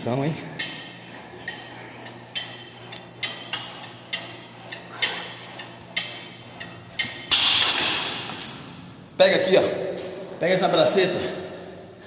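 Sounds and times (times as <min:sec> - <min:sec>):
metallic clicks of gym equipment: 0:00.5 - 0:09.0.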